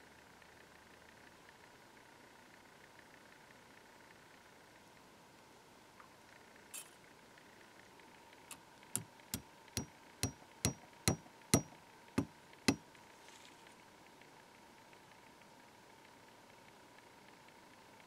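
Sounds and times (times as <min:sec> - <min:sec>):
hammer tapping metal pin: 0:10.2 - 0:12.8.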